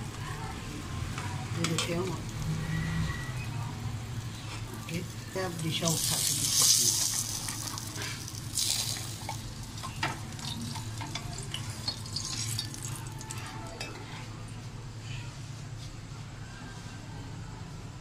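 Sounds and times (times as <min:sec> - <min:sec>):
flatbread sizzling in frying pan: 0:00.0 - 0:13.4.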